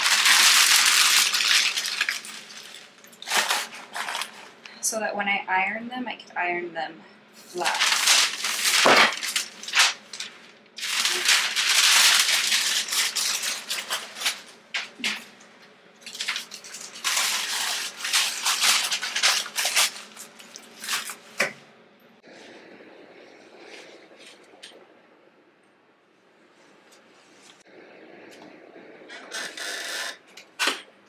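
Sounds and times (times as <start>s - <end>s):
tissue paper crinkling: 0.0s - 4.5s, 7.6s - 15.3s, 16.0s - 21.4s.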